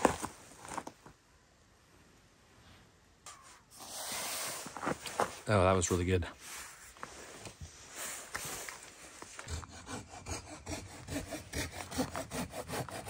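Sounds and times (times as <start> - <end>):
hand saw cutting wood: 8.4 - 13.0.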